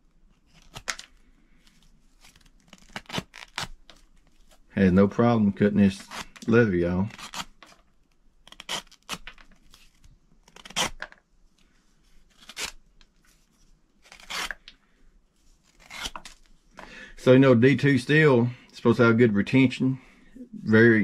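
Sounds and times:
knife slicing through leather: 12.3s - 12.8s, 14.0s - 14.7s, 15.7s - 16.4s.

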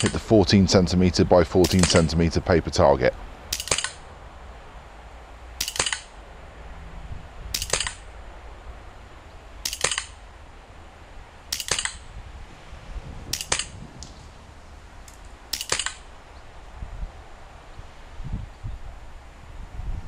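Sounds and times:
bb pistol shots: 1.6s - 2.1s, 3.5s - 4.0s, 5.6s - 6.2s, 7.5s - 8.1s, 9.6s - 10.2s, 11.5s - 12.1s, 13.3s - 13.8s, 15.1s - 16.1s.

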